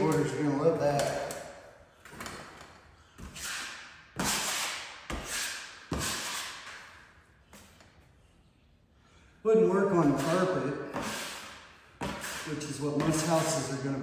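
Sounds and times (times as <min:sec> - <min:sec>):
drywall knife scraping compound: 0:03.1 - 0:07.0, 0:09.9 - 0:14.0.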